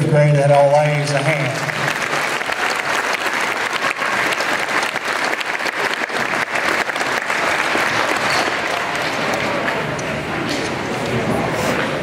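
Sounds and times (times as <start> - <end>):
audience clapping: 0.9 - 10.3.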